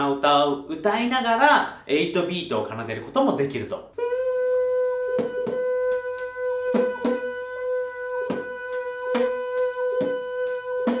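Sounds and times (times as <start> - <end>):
person humming steady note: 4.0 - 11.0
beatboxed drum pattern: 5.0 - 11.0.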